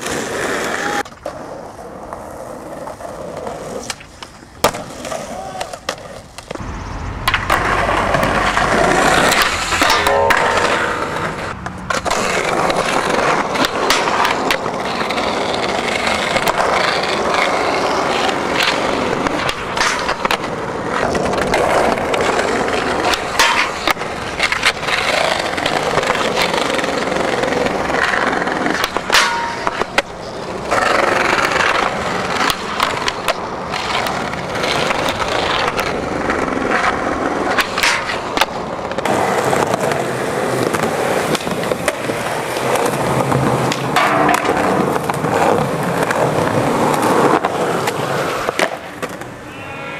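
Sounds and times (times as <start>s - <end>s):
skateboard clacks: 0.0s - 49.8s
skateboard wheels rolling on asphalt: 0.0s - 49.9s.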